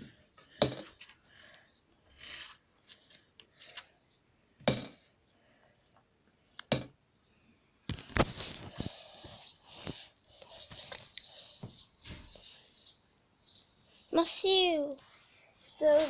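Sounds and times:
sharp knocks on money box: 4.7s - 5.0s.

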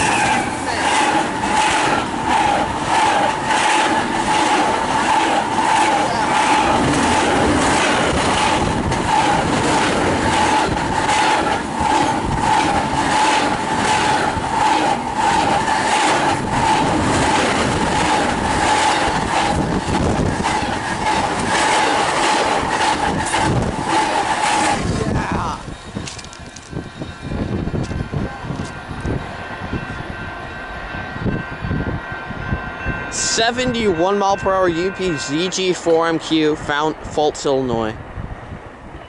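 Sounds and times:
rhythmic wheel clacking: 0.0s - 26.7s, 33.1s - 36.8s
steel wheels rushing on rail: 0.0s - 39.0s
steady high tone: 23.6s - 37.6s.

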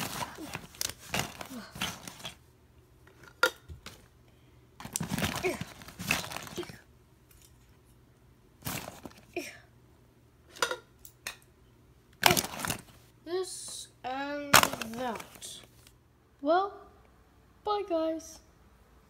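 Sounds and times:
cloth and plastic rustling: 0.0s - 2.4s, 4.8s - 6.8s, 8.6s - 9.3s, 12.2s - 13.1s, 14.6s - 16.0s.

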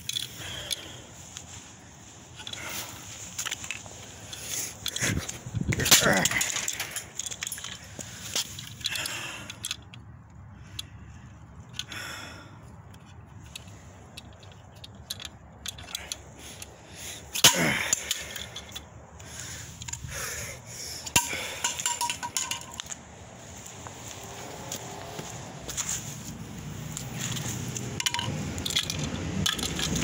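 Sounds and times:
plastic pieces clicking and knocking: 3.4s - 10.0s, 12.9s - 16.7s, 27.0s - 30.0s.

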